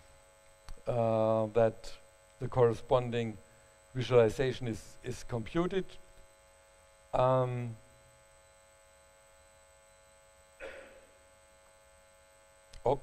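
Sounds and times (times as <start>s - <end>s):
faint electrical hum: 0.0s - 13.0s
breathy sound: 10.6s - 11.1s
man humming mm: 10.6s - 11.2s.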